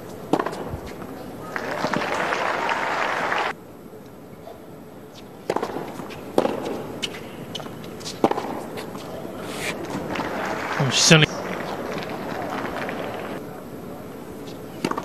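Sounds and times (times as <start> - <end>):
tennis ball struck by racket: 0.3 - 0.7, 5.5 - 7.2, 8.0 - 9.0
tennis ball bouncing: 0.3 - 1.0, 5.4 - 9.2, 14.8 - 15.0.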